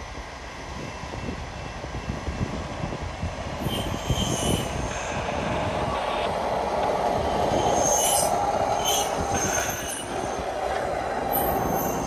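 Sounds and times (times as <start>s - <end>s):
wheels rumbling on rails: 0.0s - 12.0s
wheels squealing: 3.6s - 4.9s, 7.2s - 12.0s.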